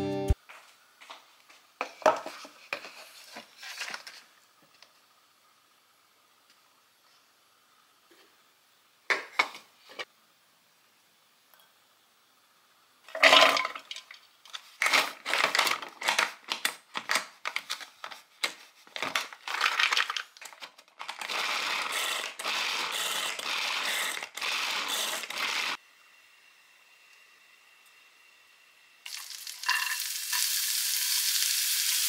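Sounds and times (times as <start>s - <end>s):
food chopper whirring and rattling: 20.9s - 25.8s.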